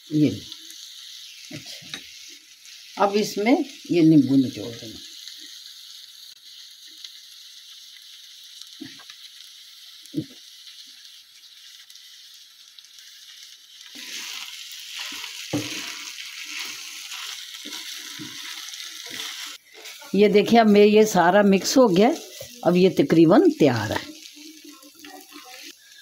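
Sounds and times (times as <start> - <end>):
food sizzling in a frying pan: 0.0 - 26.0
spatula scraping and stirring: 13.9 - 20.1, 21.6 - 25.8.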